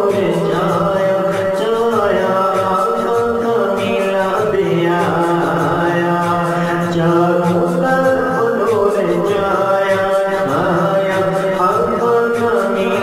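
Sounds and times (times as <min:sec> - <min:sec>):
man singing a devotional song: 0:00.0 - 0:13.0
soft rhythmic pulse: 0:00.0 - 0:13.0.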